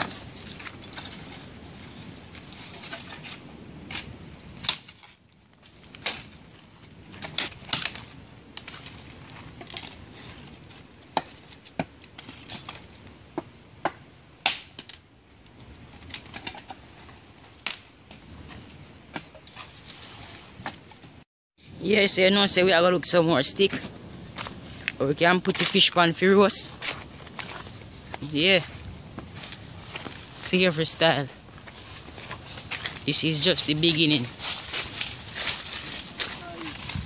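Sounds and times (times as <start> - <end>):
twigs rustling over pebbly ground: 0.0 - 13.4, 14.8 - 21.2, 21.8 - 37.0
sticks snapping: 3.9 - 5.2, 7.2 - 8.8, 17.6 - 17.9.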